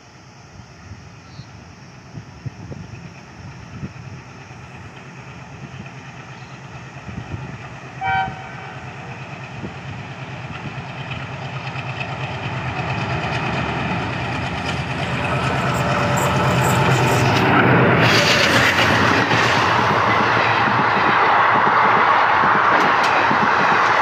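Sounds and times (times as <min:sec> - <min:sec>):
diesel locomotive engine chugging: 0:00.0 - 0:24.0
locomotive horn toot: 0:08.0 - 0:09.1.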